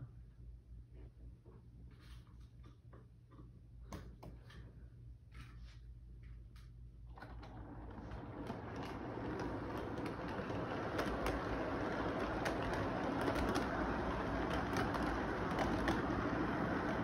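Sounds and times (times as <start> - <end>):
track clicks: 7.3 - 17.0
model train running: 7.6 - 17.0.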